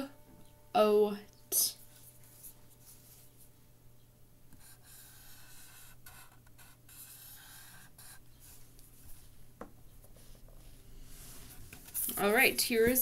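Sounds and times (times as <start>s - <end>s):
pen scratching on paper: 4.5s - 8.6s.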